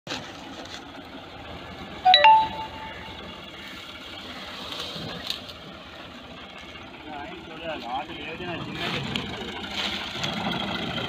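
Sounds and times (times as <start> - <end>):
electronic chime: 2.1 - 3.3.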